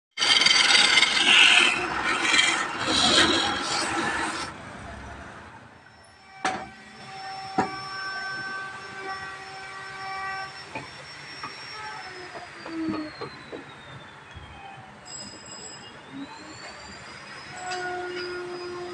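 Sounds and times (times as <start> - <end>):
lathe tool scraping wood: 0.1 - 4.5.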